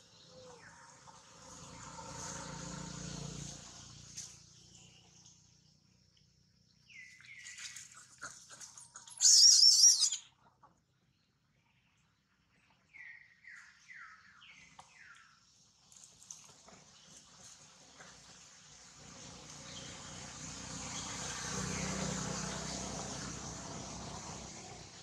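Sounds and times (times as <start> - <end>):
animal wavering shriek: 9.1 - 10.2
animal chirps: 9.1 - 10.3.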